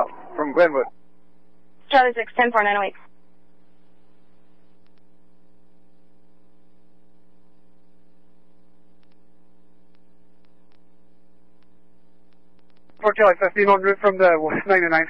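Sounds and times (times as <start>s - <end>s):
electrical hum: 0.0s - 15.0s
faint ticks: 3.0s - 5.2s, 7.4s - 13.0s.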